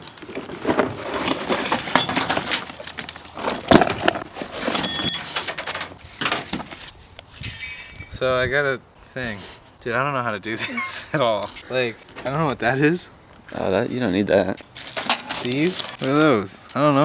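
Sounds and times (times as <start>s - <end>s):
metal and plastic parts clattering: 0.3s - 6.8s
ringing metal clink: 4.7s - 6.0s, 7.4s - 8.2s.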